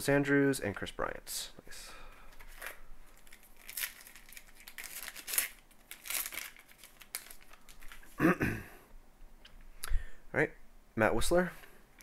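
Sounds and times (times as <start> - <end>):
foil wrapper crinkling and tearing: 2.5 - 8.2.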